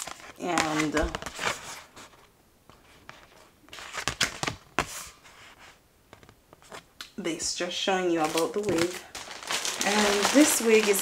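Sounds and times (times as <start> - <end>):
paper rustling and crinkling: 0.0 - 6.9, 8.1 - 11.0.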